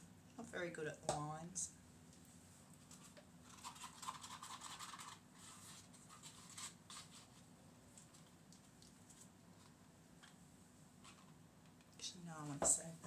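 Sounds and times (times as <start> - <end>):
faint rapid scratching: 2.8 - 8.3.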